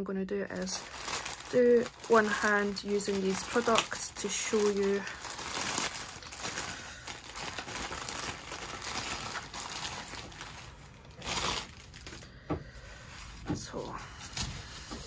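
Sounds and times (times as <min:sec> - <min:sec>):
plastic mailer bag crinkling and tearing: 0:00.5 - 0:12.3, 0:13.0 - 0:15.0
wrapping rustling: 0:00.5 - 0:15.0.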